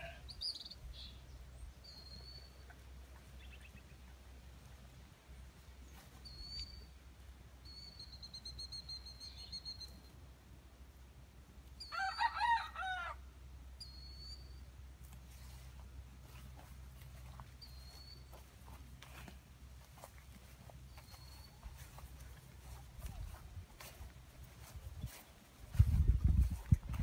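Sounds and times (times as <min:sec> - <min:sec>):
rooster crowing: 0:11.8 - 0:13.2.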